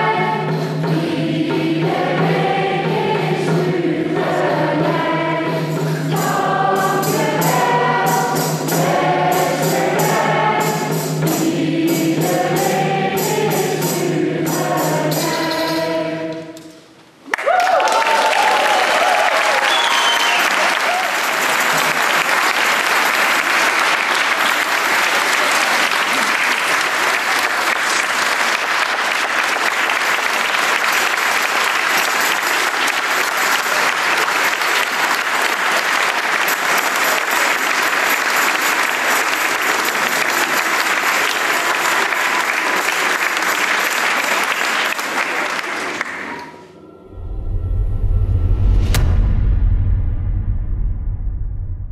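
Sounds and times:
large audience applause: 17.2 - 46.7
low rumbling: 46.8 - 51.9.

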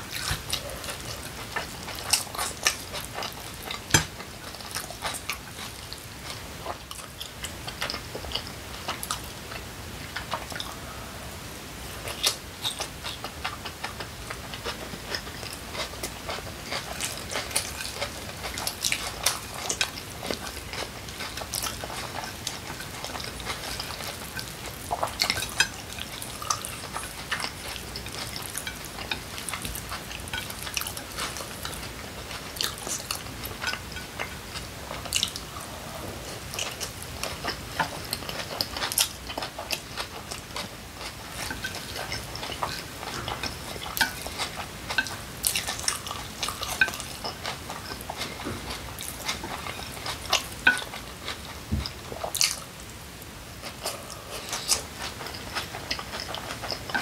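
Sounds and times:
chewing and wet mouth smacks: 12.0 - 52.8, 53.6 - 57.0
chopsticks on a plate: 14.6 - 35.4, 36.6 - 52.6.

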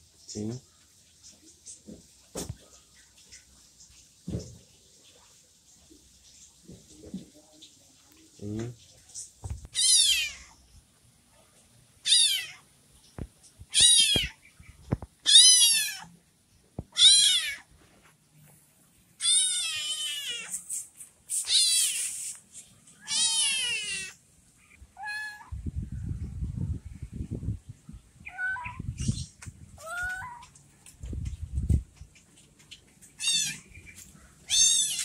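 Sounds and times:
kitten meowing: 9.7 - 10.6, 12.0 - 12.6, 13.7 - 14.4, 15.2 - 16.1, 16.9 - 17.6, 19.2 - 20.6, 21.4 - 22.2, 23.0 - 24.2, 25.0 - 25.5, 28.3 - 28.8, 29.8 - 30.5, 33.2 - 33.7, 34.5 - 35.0.

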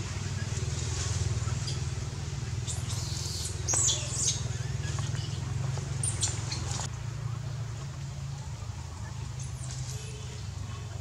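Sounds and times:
monkeys squeaking: 2.6 - 6.9.

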